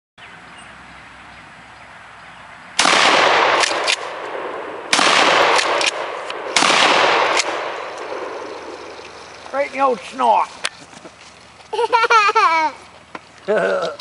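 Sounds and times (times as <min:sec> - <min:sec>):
shotgun blasts: 0:02.8 - 0:08.8.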